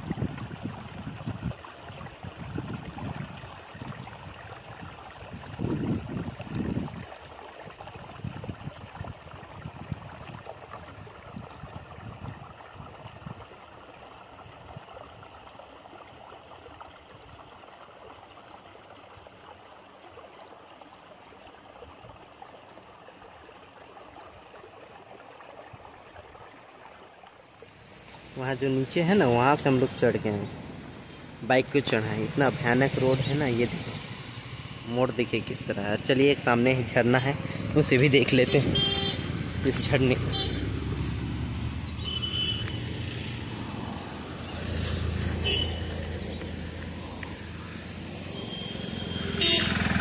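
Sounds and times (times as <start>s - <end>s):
wind gusts buffeting microphone: 0.0s - 7.1s, 8.0s - 13.4s
steady rushing hiss: 27.6s - 36.6s.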